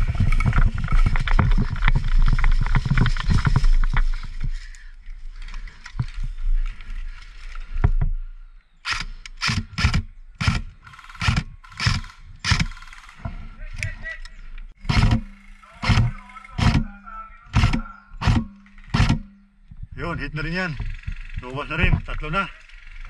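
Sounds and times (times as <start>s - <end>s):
wind buffeting microphone: 0.0s - 4.7s
thumping and rustling of gear: 0.0s - 8.3s.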